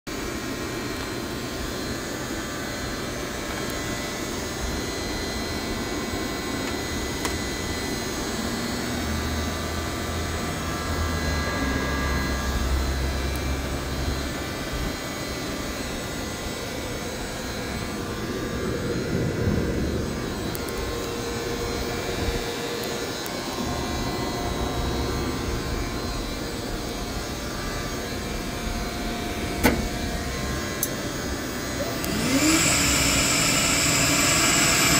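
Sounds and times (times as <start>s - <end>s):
microturbine jet-like rush: 16.2s - 34.9s
deep rumble: 18.6s - 22.4s.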